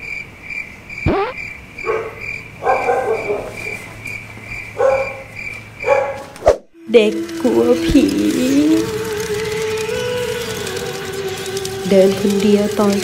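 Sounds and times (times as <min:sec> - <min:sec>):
crickets chirping: 0:00.0 - 0:06.4, 0:08.8 - 0:13.0
dog yelping and barking: 0:01.8 - 0:03.8, 0:04.8 - 0:06.4.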